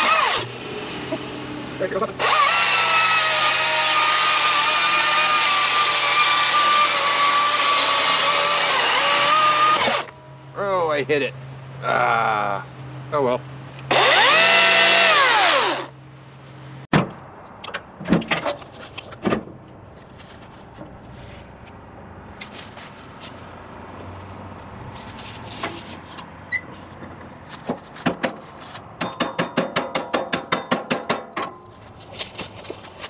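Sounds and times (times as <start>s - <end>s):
electric chainsaw motor whine: 2.2s - 10.1s, 13.9s - 15.9s
knocks and clatter: 16.9s - 19.7s, 27.0s - 28.4s.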